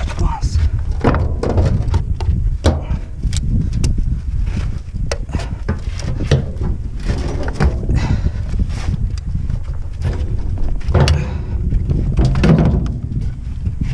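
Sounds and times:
steady low rumble: 0:00.0 - 0:13.9.

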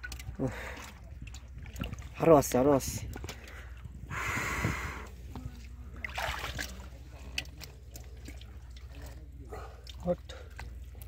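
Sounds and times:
small wet clicks: 0:00.0 - 0:03.9, 0:05.3 - 0:11.0
muddy water splashing: 0:00.0 - 0:11.0.

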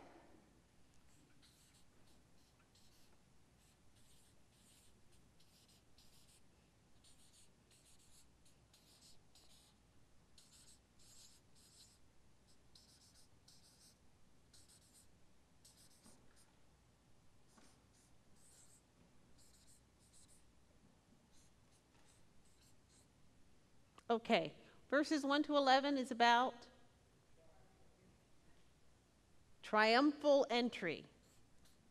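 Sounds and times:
marker pen scratching on paper: 0:01.0 - 0:09.8, 0:10.4 - 0:16.5, 0:17.5 - 0:20.5, 0:21.3 - 0:23.1, 0:31.2 - 0:31.9.

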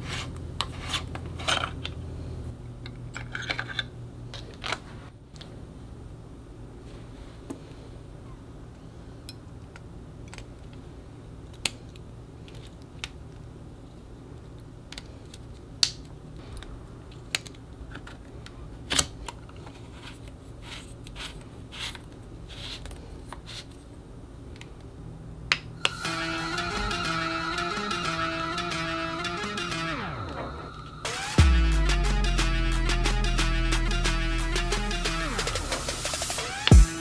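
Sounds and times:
plastic parts clicking and tapping: 0:09.2 - 0:10.8
guitar music: 0:25.9 - 0:37.0.

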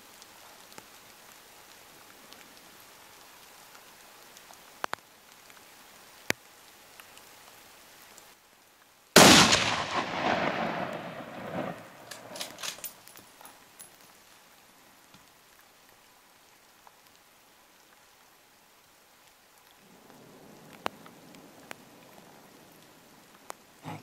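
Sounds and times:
rain hissing: 0:00.0 - 0:24.0
rifle shot echoing: 0:09.2 - 0:12.8
sharp clicks: 0:12.0 - 0:12.9.

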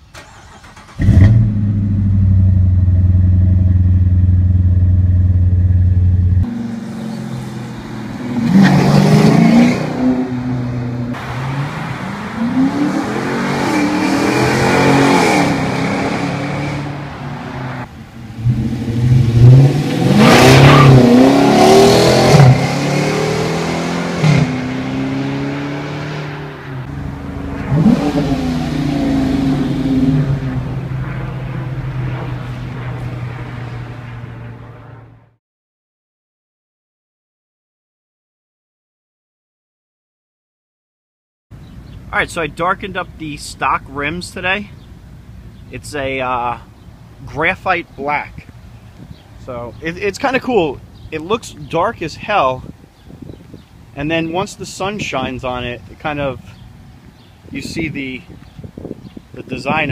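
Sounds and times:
car engine cold start: 0:00.0 - 0:02.5
car engine fast idle: 0:00.1 - 0:01.3
car passing and accelerating: 0:01.0 - 0:35.4.

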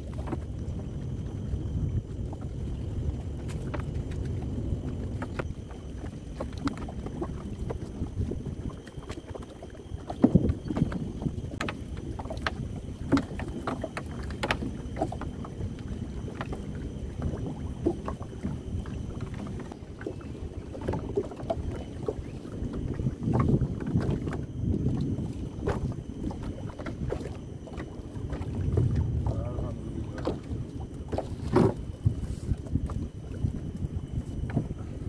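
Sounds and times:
water: 0:00.0 - 0:35.0
wind: 0:00.0 - 0:35.0.

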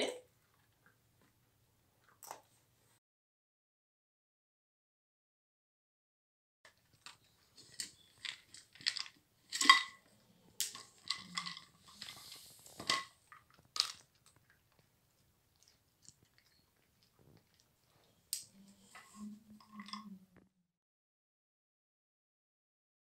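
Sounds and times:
dog chewing kibble: 0:06.8 - 0:19.8
plastic cups knocking and clattering: 0:07.0 - 0:14.1.

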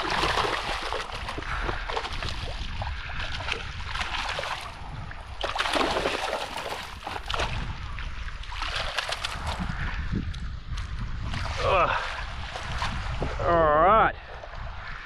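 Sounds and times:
fish thrashing and splashing in water: 0:00.0 - 0:10.0
wind rumble on microphone: 0:00.0 - 0:15.0.

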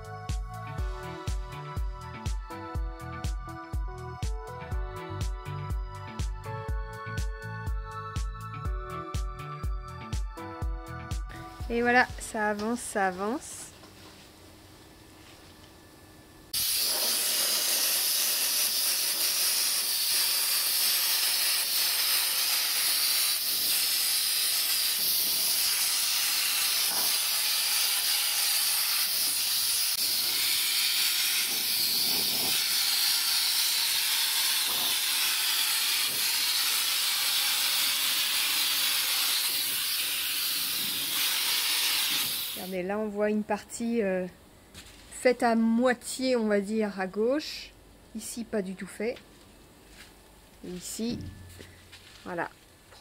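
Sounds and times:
spray gun hissing: 0:16.6 - 0:24.0, 0:28.6 - 0:32.9.

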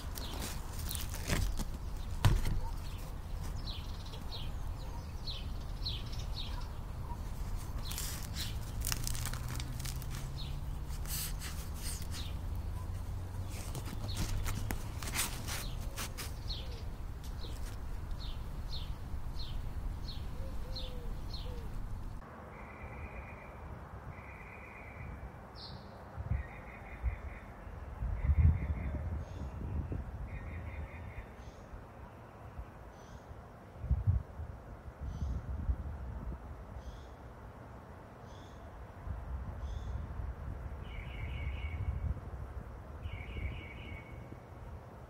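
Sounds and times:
crusty bread crackling: 0:00.0 - 0:04.6, 0:06.4 - 0:19.0
small birds chirping: 0:00.0 - 0:22.2
outdoor ambience: 0:00.0 - 0:45.0.

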